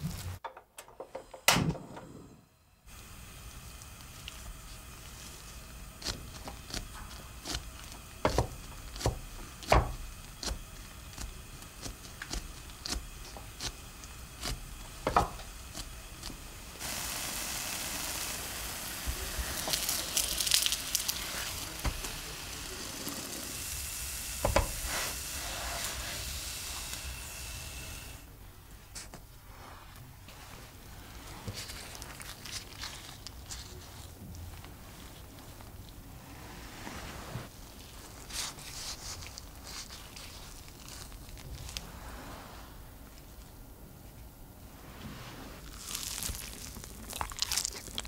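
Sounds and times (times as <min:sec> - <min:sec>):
bread sizzling in a pan: 0:02.9 - 0:28.3, 0:45.1 - 0:48.0.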